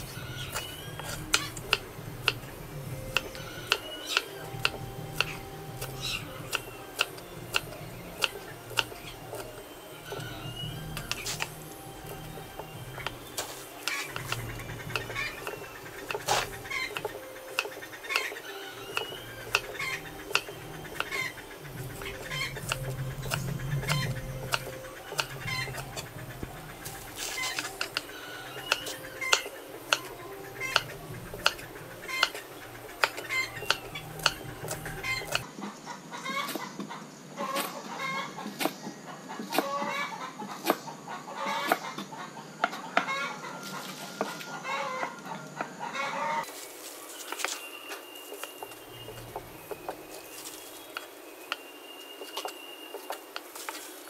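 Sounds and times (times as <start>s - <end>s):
knife chopping on wooden board: 0.0s - 18.4s, 19.0s - 35.5s
chickens clucking: 0.0s - 54.0s.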